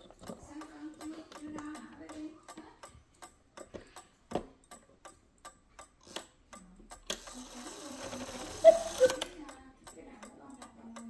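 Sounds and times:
clock ticking: 0.0s - 11.0s.

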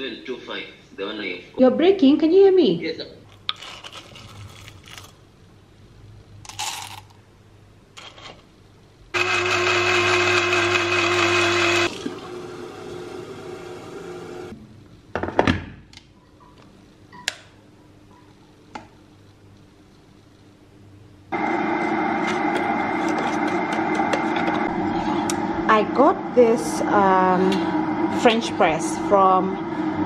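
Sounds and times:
coffee grinder whirring: 9.2s - 14.5s, 21.4s - 24.9s.

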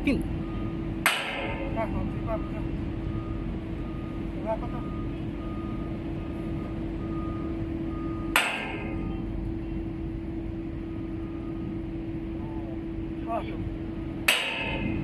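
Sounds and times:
low machinery hum: 0.0s - 15.0s
sledgehammer clanging on steel: 1.1s - 2.0s, 8.3s - 9.2s, 14.3s - 15.0s.

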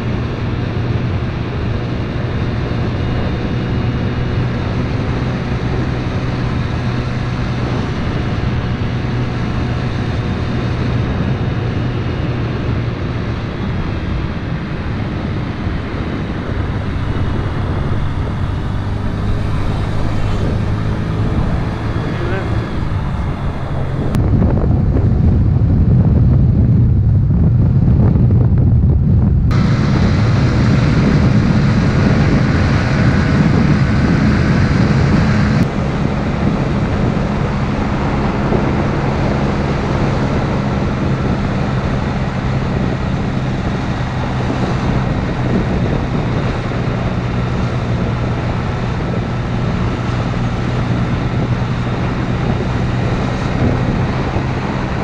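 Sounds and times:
scooter engine running: 0.0s - 24.2s
wind on microphone: 0.0s - 55.0s.

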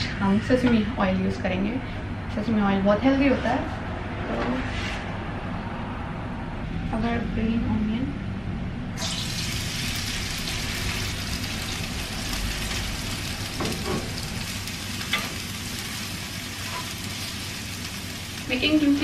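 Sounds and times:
onion sizzling in hot oil: 9.0s - 19.0s.

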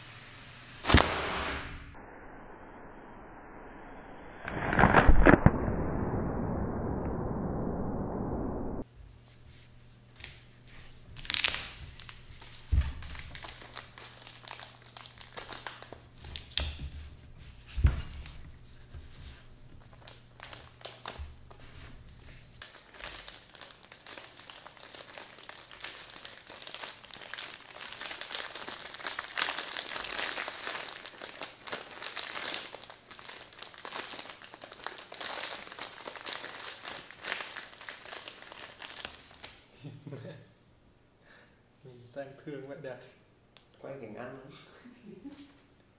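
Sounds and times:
plastic bread packet crinkling: 10.6s - 16.8s, 19.8s - 21.6s, 22.5s - 39.6s.

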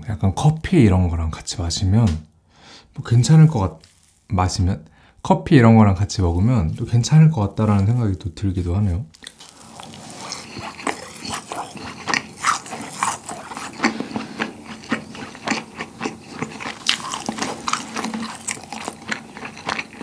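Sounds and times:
close chewing mouth smacks: 9.1s - 20.0s.

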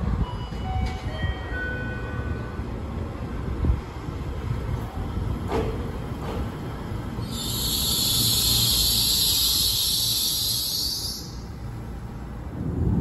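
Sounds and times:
electric train rumbling: 0.0s - 13.0s
high brake hiss: 7.2s - 11.6s.

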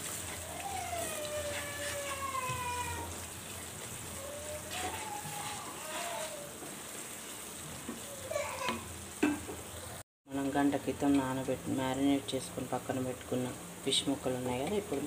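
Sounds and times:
wooden spatula stirring: 0.0s - 8.8s
masala sizzling in frying pan: 0.0s - 15.0s.

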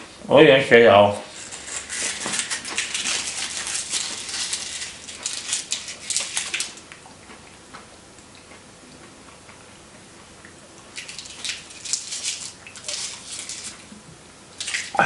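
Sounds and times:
candy wrapper crinkling: 1.3s - 6.9s, 10.9s - 13.9s.

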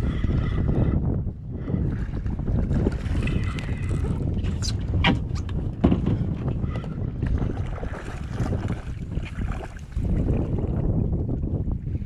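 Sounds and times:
wind buffeting microphone: 0.0s - 12.0s
kayak hatch lid knocks: 5.0s - 6.3s.

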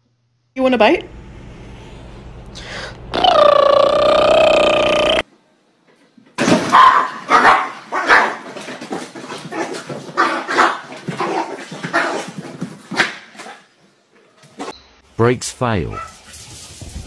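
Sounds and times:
small dog barking: 6.7s - 8.4s, 15.9s - 16.2s.

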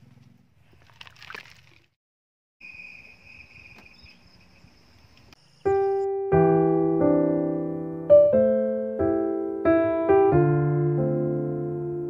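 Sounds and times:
insects trilling: 2.6s - 6.0s
piano music: 5.6s - 12.0s.

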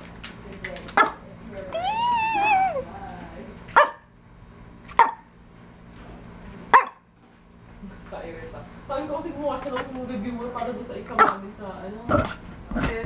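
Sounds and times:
dog barking: 3.8s - 4.1s, 4.9s - 5.3s, 6.7s - 7.0s, 11.2s - 11.4s.

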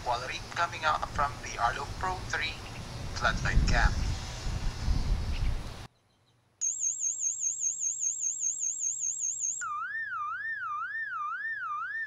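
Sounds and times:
electronic alarm siren warbling: 6.6s - 12.0s.

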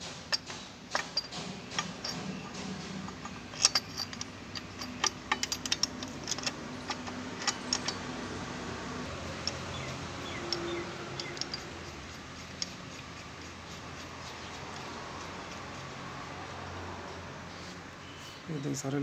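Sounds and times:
metallic clicks and taps: 0.3s - 8.0s, 9.3s - 13.6s.

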